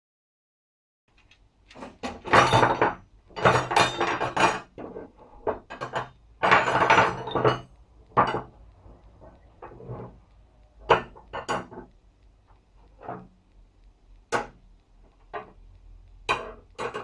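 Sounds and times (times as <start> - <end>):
steel bars clinking on wood: 5.4 - 8.5.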